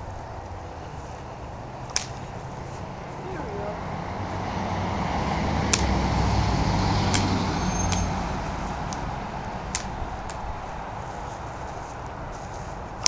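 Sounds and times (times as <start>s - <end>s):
road traffic rumble: 0.0s - 13.0s
sharp clicks: 5.7s - 6.0s, 7.1s - 8.1s, 9.7s - 10.4s.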